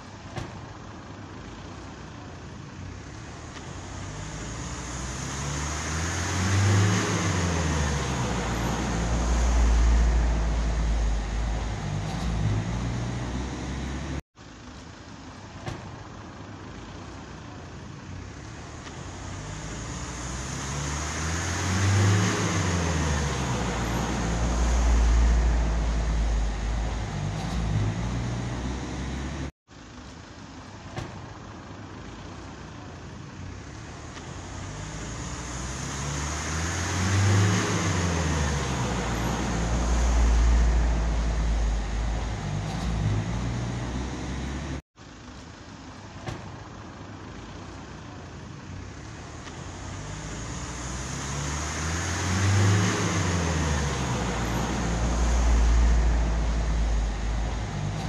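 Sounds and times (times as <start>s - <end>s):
motor vehicle passing by: 3.3s - 14.2s, 18.5s - 29.5s, 33.8s - 44.8s, 48.9s - 58.0s.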